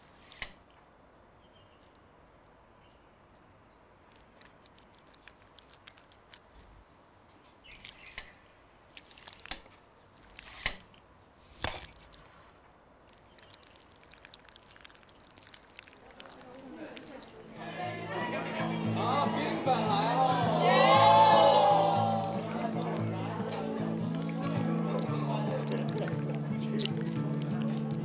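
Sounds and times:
jelly squishing: 0:04.1 - 0:06.7, 0:07.6 - 0:08.3, 0:08.9 - 0:10.8, 0:11.5 - 0:17.6, 0:20.6 - 0:28.0.

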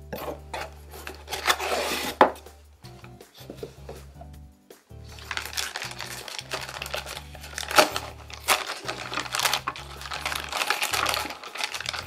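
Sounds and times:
background music with bass: 0:00.0 - 0:12.0
plastic bag crinkling: 0:05.1 - 0:12.0.

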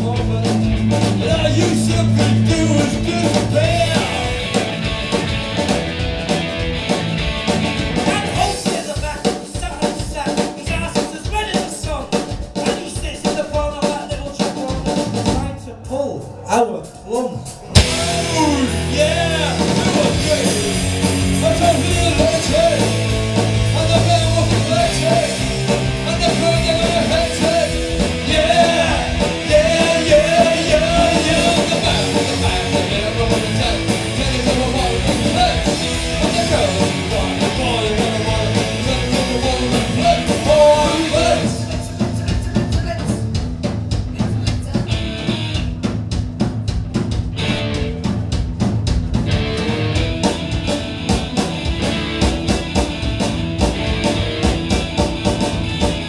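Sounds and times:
person singing lead vocal: 0:00.0 - 0:04.6, 0:08.0 - 0:43.2
live rock band playing: 0:00.0 - 0:56.0.

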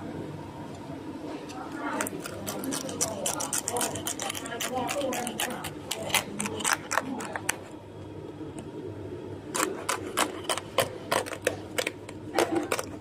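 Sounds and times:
roasted skin crackling under knife: 0:01.8 - 0:07.6, 0:09.5 - 0:13.0.

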